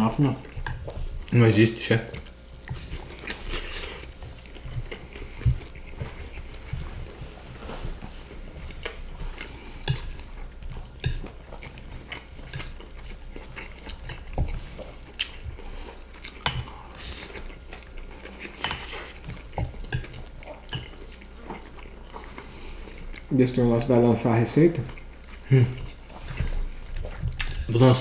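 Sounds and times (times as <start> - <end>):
cutlery scraping and clinking on plates: 2.7 - 6.9, 9.2 - 10.3, 18.3 - 22.4.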